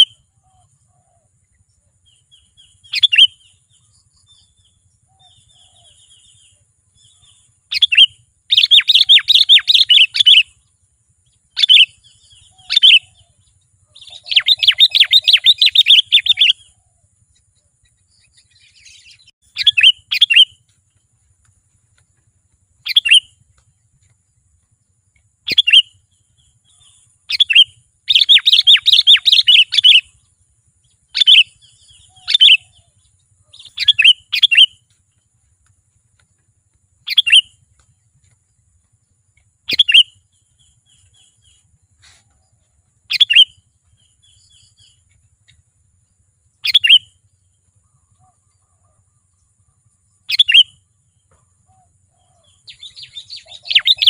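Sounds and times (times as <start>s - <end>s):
bird chattering calls: 7.0s - 10.5s, 13.9s - 16.8s, 18.2s - 20.6s, 22.8s - 23.4s, 25.4s - 26.0s, 26.6s - 30.2s, 31.1s - 34.8s, 37.0s - 37.6s, 39.7s - 42.4s, 43.1s - 45.1s, 46.6s - 47.2s, 50.3s - 50.8s, 51.7s - 54.0s.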